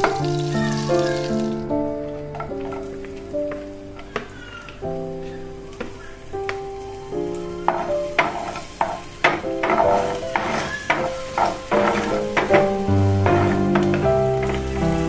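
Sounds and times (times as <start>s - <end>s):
garlic sizzling in hot oil: 0.0s - 1.7s, 5.6s - 15.0s
soft background music: 0.0s - 15.0s
spatula scraping pan: 7.6s - 15.0s.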